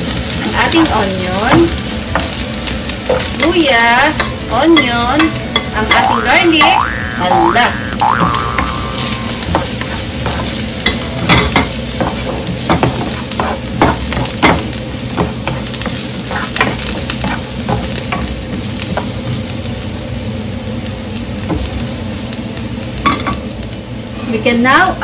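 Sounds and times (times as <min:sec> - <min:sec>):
aromatics sizzling in oil: 0:00.0 - 0:25.0
spatula scraping and tapping pan: 0:09.3 - 0:19.1.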